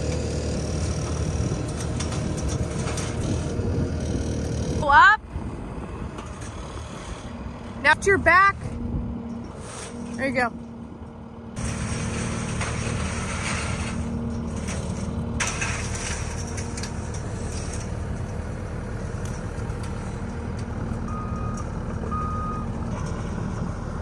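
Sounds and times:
diesel engine running: 0:00.0 - 0:24.0
back-up alarm beeps: 0:21.1 - 0:22.8.

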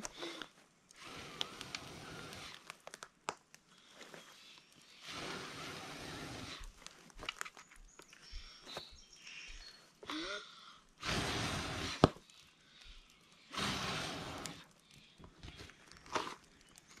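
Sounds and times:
person blowing on embers: 0:00.0 - 0:02.9, 0:03.6 - 0:07.2, 0:10.1 - 0:17.0
sharp crack of fire: 0:00.0 - 0:03.8, 0:04.4 - 0:07.6, 0:10.9 - 0:17.0.

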